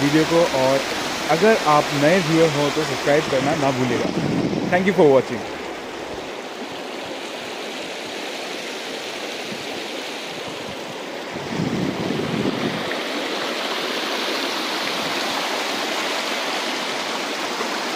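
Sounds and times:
river rushing over rocks: 0.0 - 17.9.

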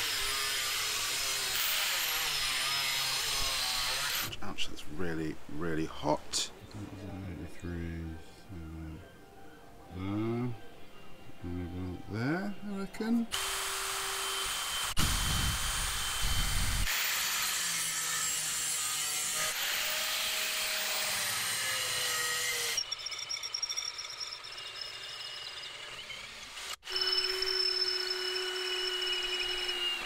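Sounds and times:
power tools rushing and whining: 0.0 - 4.3, 13.3 - 30.0.

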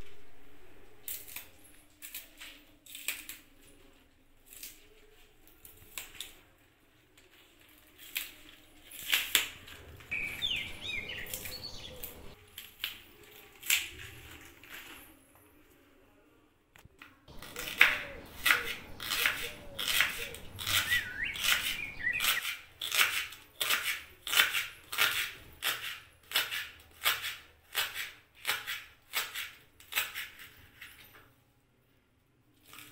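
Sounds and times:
green onion stalks crackling: 1.0 - 15.2, 17.3 - 30.9, 32.5 - 32.9
high chirps: 10.1 - 12.4.

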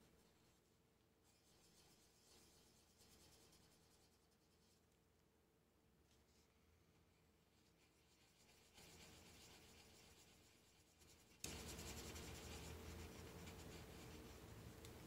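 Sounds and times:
colored pencil scratching on paper: 1.3 - 4.8, 7.5 - 15.0.

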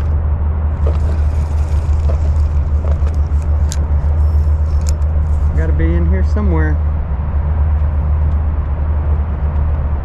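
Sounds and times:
trolling motor humming: 0.0 - 9.7.

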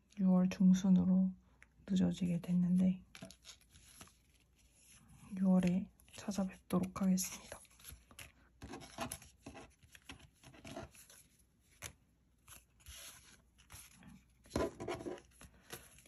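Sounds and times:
paper sheets rustling: 6.8 - 16.0.

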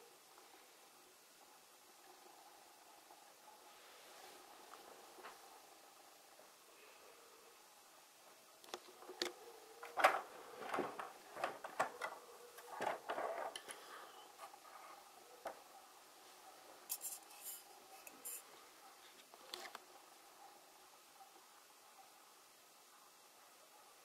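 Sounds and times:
high scraping sounds: 16.9 - 18.5.

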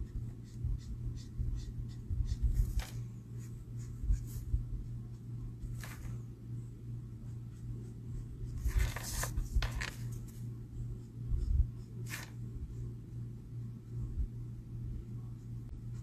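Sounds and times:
marker scratching on paper: 0.0 - 4.5
steady low hum: 0.0 - 16.0.

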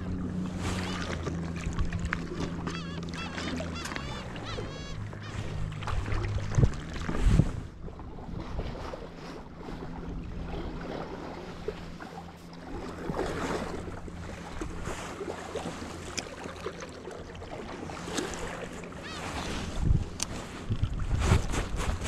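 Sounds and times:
waves lapping against rocks: 0.3 - 22.0
wind buffeting microphone: 4.1 - 9.2, 19.6 - 22.0.

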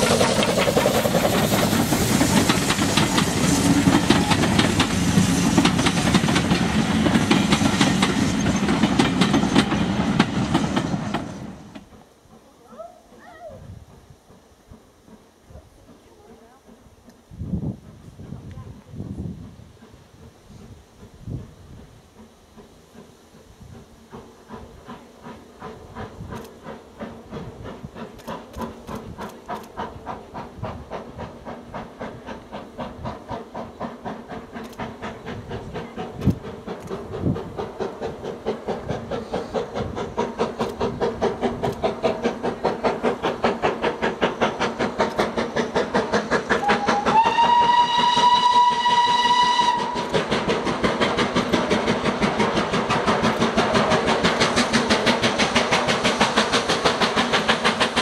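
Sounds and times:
steam locomotive exhaust beating: 0.0 - 58.0
steam whistle blast: 46.6 - 50.1.

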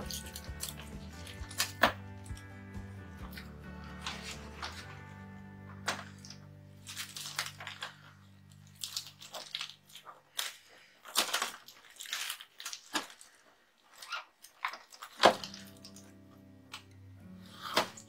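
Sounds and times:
plastic wrapping crackling: 5.8 - 18.0.

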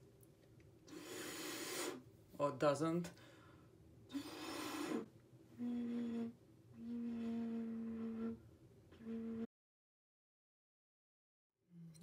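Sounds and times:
low vessel flute notes: 5.6 - 9.5.

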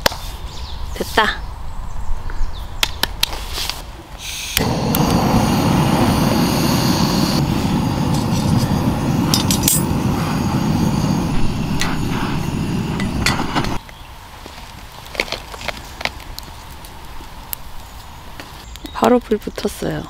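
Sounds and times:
gas torch flame hissing: 4.2 - 13.8
gas torch ignition clicks: 4.4 - 6.0.

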